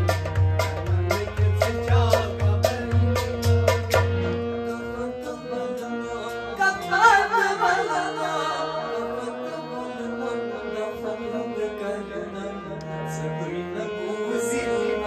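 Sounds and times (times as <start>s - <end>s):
drum beat: 0.0s - 4.1s
held keyboard notes: 0.0s - 15.0s
man singing: 0.8s - 15.0s.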